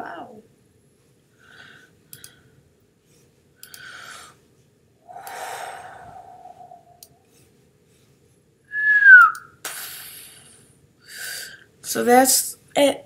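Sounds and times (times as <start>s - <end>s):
long voiced sigh: 5.1s - 7.0s
breaths close to microphone: 5.1s - 7.4s.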